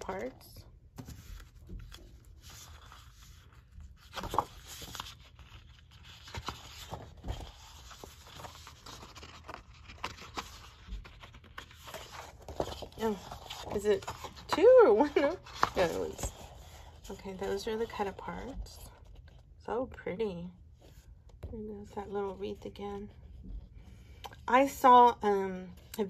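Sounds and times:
paper sheets rustling: 1.0s - 19.4s
sharp paper crackles: 1.2s - 18.0s.

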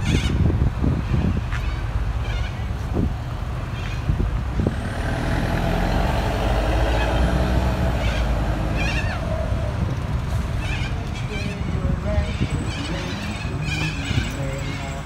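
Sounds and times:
large vehicle engine rumble: 0.0s - 15.0s
cockatoo screeches: 7.9s - 9.5s.

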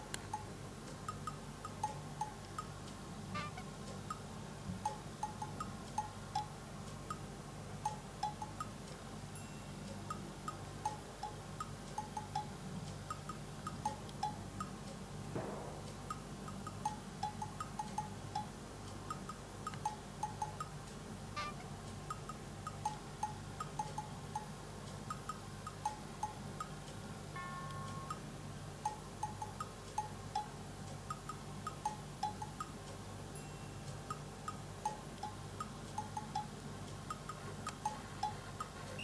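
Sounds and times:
low steady hum: 0.0s - 39.0s
small bells tinkling: 9.4s - 9.9s, 33.3s - 33.9s.

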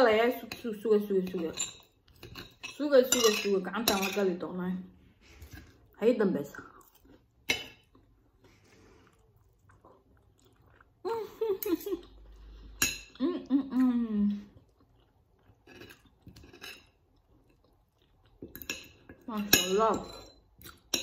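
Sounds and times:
woman's voice: 0.0s - 1.7s, 2.8s - 4.9s, 6.0s - 6.7s, 19.3s - 20.2s
chewing: 6.6s - 11.0s, 14.4s - 19.3s, 20.5s - 21.0s
cutlery scraping on a plate: 15.7s - 16.9s.

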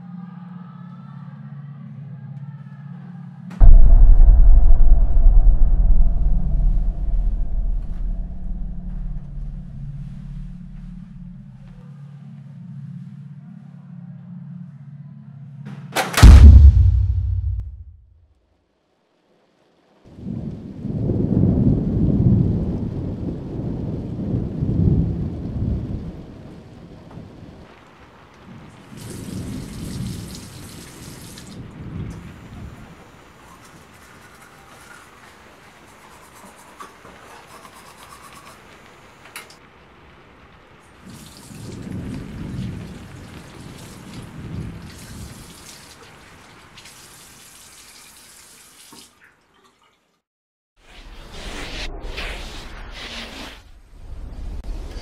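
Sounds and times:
rolling thunder: 3.6s - 11.6s, 16.2s - 17.9s, 20.1s - 27.8s, 41.0s - 45.2s
rain hiss: 5.0s - 11.6s, 18.8s - 48.9s.

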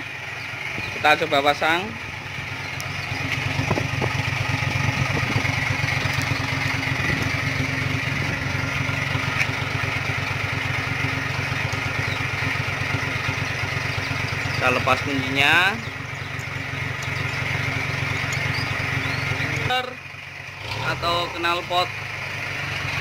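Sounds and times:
diesel engine idling: 0.0s - 23.0s.

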